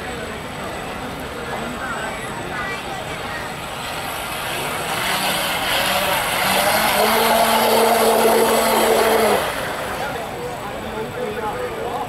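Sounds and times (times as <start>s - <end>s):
model boat motor whining: 2.8s - 11.7s.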